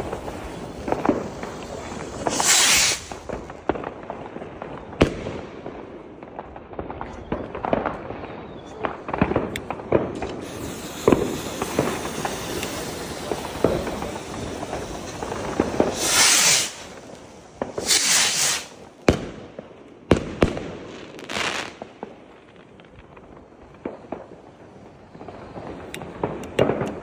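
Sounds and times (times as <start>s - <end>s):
rockets launching with whooshes: 0.0s - 4.1s, 8.8s - 24.4s
pops and crackles: 8.6s - 19.2s, 25.2s - 27.0s.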